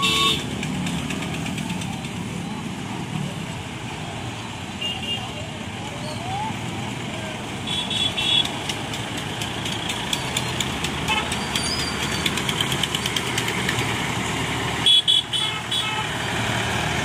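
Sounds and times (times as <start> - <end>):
vehicle horn honking: 0.0 - 0.5, 14.8 - 16.1
lorry and motorcycle engines: 0.0 - 17.0.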